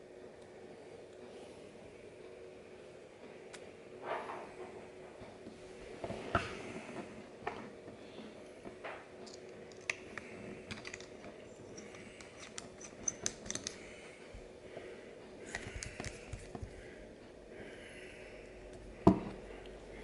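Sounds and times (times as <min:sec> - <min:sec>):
metal wrench sockets clicking: 0:10.7 - 0:11.1, 0:11.7 - 0:13.8.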